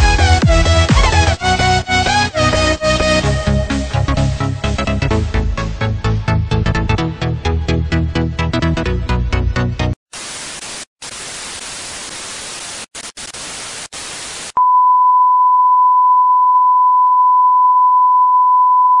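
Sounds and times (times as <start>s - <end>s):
television static hiss: 10.1s - 14.6s.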